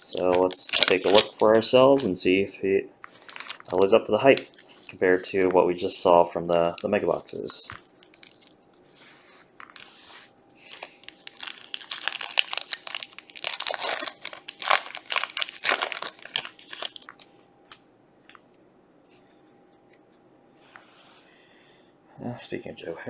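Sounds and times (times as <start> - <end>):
foil wrapper crinkling and tearing: 0.0 - 2.2, 3.2 - 5.0, 6.5 - 8.6, 10.6 - 17.3.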